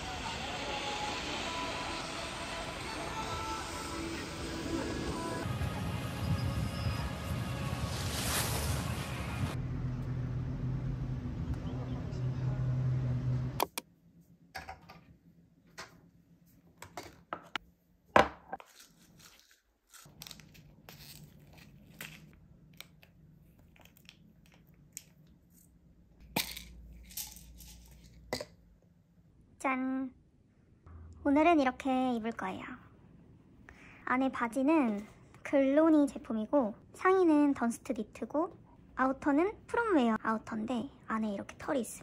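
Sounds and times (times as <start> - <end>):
background music: 0.0 - 9.6.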